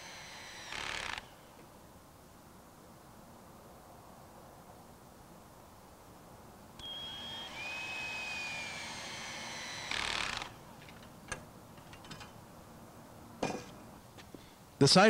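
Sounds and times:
screw rasping into wood: 0.0 - 1.3, 6.8 - 10.6
power screwdriver whining: 0.0 - 1.4, 6.8 - 10.6.

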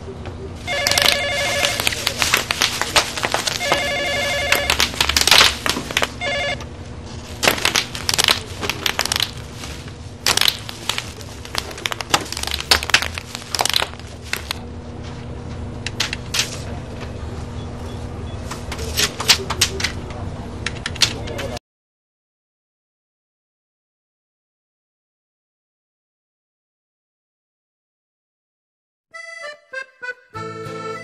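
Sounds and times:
telephone ringing: 0.6 - 2.2, 3.4 - 5.2, 6.0 - 6.7
plastic packing crinkling: 0.6 - 14.6.

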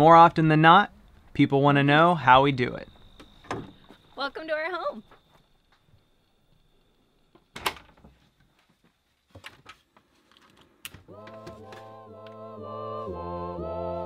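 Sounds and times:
music with held vocal-like notes: 11.1 - 14.0.

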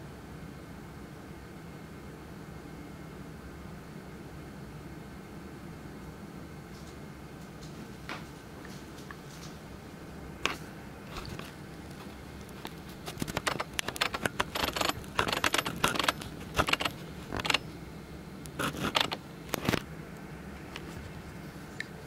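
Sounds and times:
small clicks and rattles: 10.4 - 17.6, 18.5 - 19.9.

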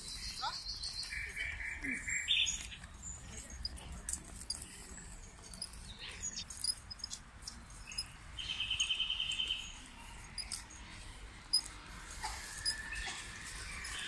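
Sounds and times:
small birds chirping: 0.0 - 14.0
bird trill: 7.8 - 9.8.

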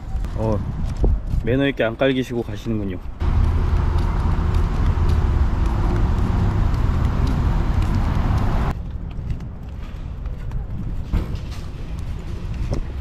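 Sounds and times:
road traffic passing: 3.2 - 8.8.

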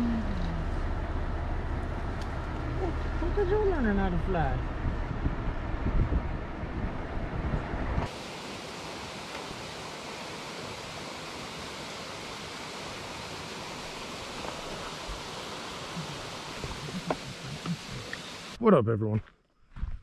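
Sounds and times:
truck road rumble: 0.0 - 8.1
steady hiss: 8.1 - 18.6.

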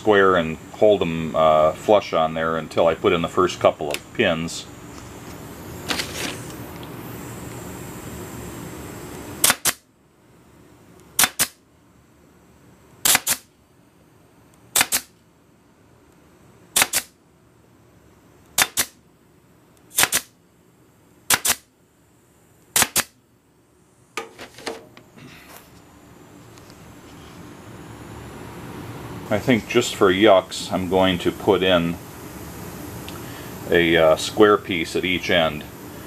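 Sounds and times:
nailer set down clatter: 5.9 - 6.5, 24.2 - 24.9
pin nailer firing: 9.4 - 9.9, 11.2 - 11.6, 13.0 - 13.5, 14.7 - 15.2, 16.7 - 17.2, 18.6 - 19.0, 19.9 - 20.4, 21.3 - 21.7, 22.7 - 23.2.

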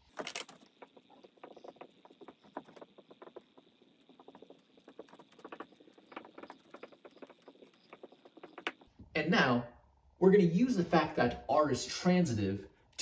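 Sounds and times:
marker writing on whiteboard: 0.0 - 8.9.

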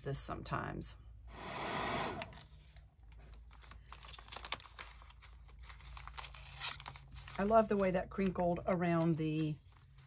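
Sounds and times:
hair dryer blowing: 1.3 - 2.4
paper crinkling: 2.4 - 10.0.

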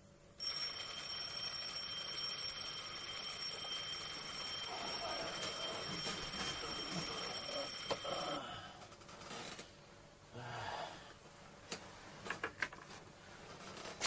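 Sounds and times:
alarm clock ringing: 0.4 - 8.4.

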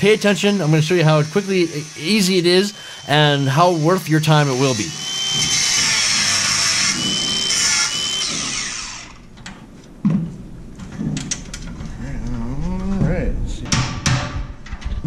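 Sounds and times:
angle grinder grinding metal: 0.0 - 9.3.

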